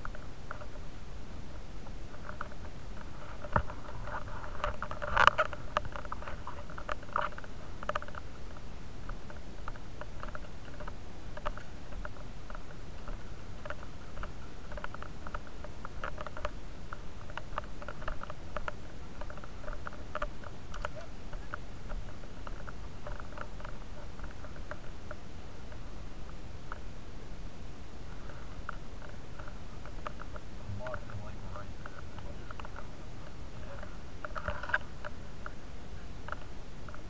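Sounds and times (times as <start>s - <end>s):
camera rubbing against clothing: 2.1s - 8.6s.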